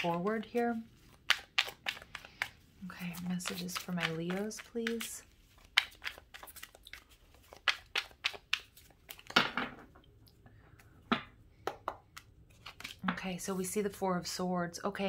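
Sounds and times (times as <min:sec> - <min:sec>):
cards being shuffled: 0:00.0 - 0:09.4, 0:12.2 - 0:13.6.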